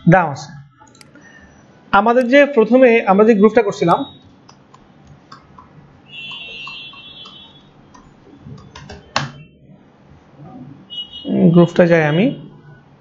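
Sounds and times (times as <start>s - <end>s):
keyboard keys clicking: 6.3s - 9.4s.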